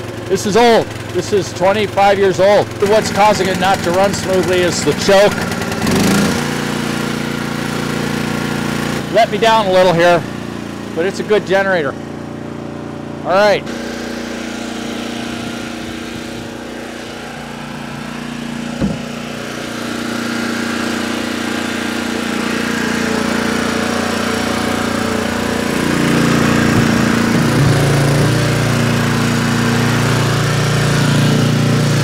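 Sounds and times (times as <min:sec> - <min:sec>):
generator engine running: 0:00.0 - 0:32.0
single knock: 0:18.8 - 0:19.1.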